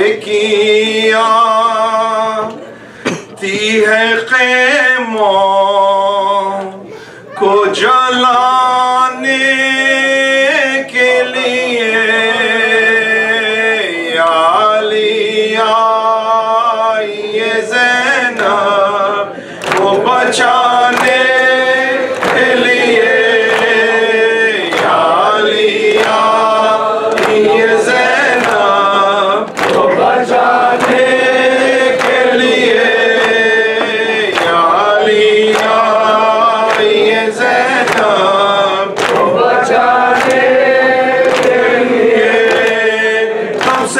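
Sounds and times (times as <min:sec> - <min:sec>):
man chanting into a microphone: 0:00.0 - 0:02.7, 0:03.3 - 0:40.3, 0:42.1 - 0:43.9
voices joining in chant: 0:17.0 - 0:43.9
rhythmic sharp slaps: 0:18.2 - 0:18.8, 0:19.6 - 0:43.9.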